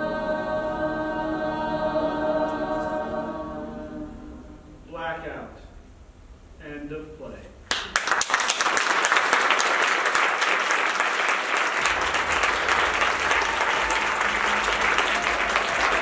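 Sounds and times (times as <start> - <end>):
audience applauding: 7.7 - 16.0.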